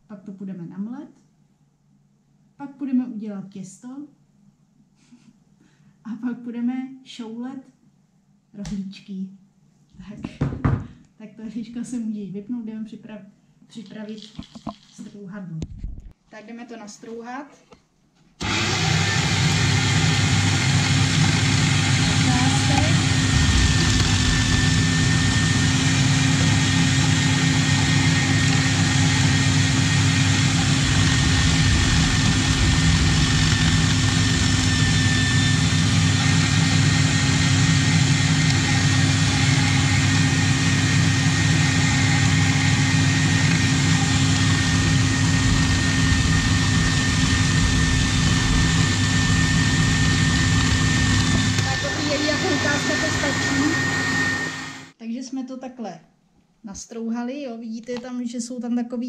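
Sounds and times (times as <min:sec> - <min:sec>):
kitchen machine motor hum: 0:18.4 - 0:54.9.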